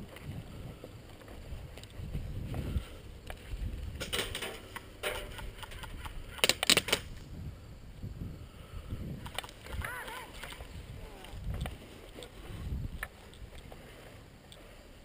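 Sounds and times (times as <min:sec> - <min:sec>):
wind on microphone: 0:00.0 - 0:04.4, 0:05.2 - 0:13.8
sharp clicks or snaps: 0:04.7 - 0:07.1.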